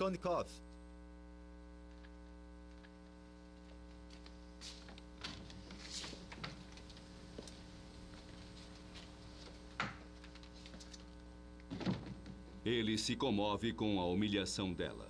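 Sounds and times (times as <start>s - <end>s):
mains hum: 0.0s - 15.0s
faint rustles and light knocks: 3.6s - 11.2s.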